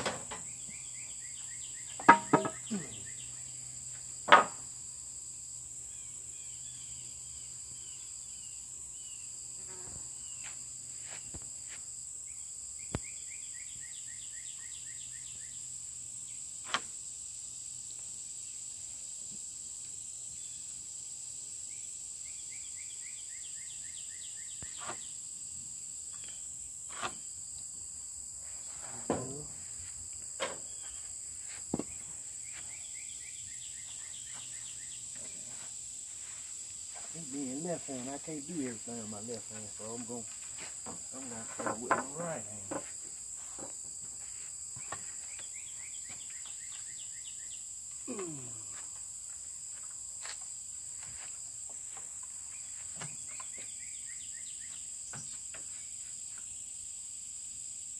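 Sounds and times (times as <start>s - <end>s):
insects droning: 0.0s - 57.9s
sharp knocks: 2.0s - 2.8s, 4.3s - 4.6s.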